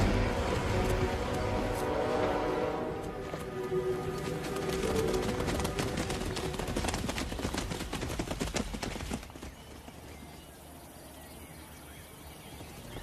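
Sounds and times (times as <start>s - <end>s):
zebras galloping hoofbeats: 3.0s - 11.4s.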